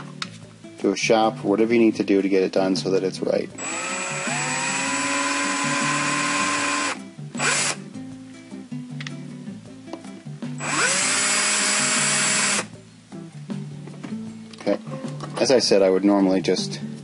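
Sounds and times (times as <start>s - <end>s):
cordless drill whining: 3.6s - 7.8s, 10.6s - 12.7s.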